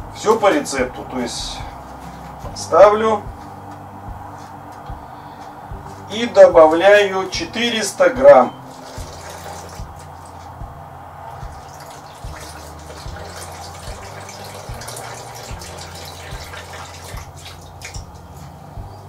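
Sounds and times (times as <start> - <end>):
steady low hum: 0.0 - 19.0
water pouring in a thin stream: 8.7 - 10.4, 11.6 - 18.1.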